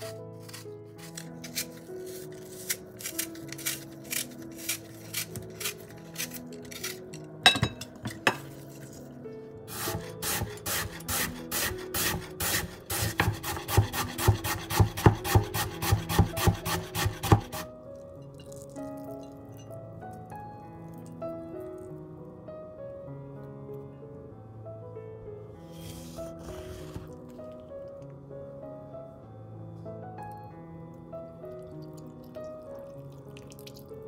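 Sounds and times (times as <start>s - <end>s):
peeler scraping apple skin: 0.0s - 7.2s, 9.7s - 17.7s, 25.7s - 27.1s
soft background music: 0.0s - 34.0s
knife chopping apple on board: 9.7s - 17.7s.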